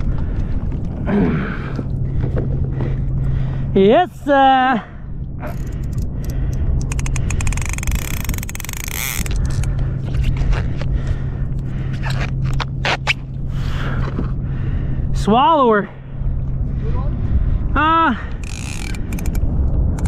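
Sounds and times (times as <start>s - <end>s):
fishing reel cranking clicks: 5.5s - 9.7s, 18.4s - 20.0s.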